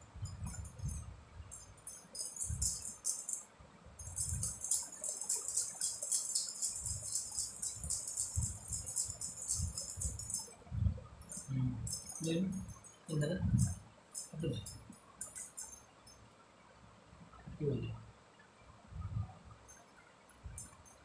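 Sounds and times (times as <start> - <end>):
bangles jingling: 0.0 - 10.6, 11.2 - 16.2, 19.7 - 21.0.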